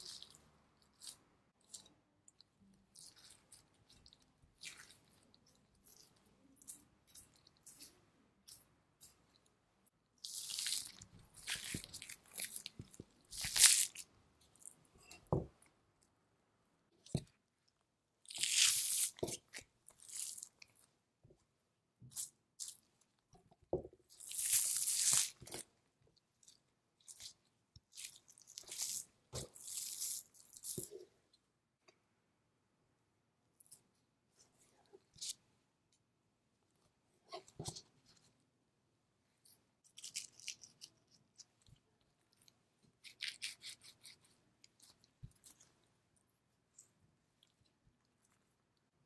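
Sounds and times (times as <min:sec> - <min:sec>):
fat peeled from meat: 0:10.2 - 0:15.7, 0:18.2 - 0:20.9, 0:24.1 - 0:25.8, 0:26.4 - 0:31.2, 0:39.4 - 0:45.9.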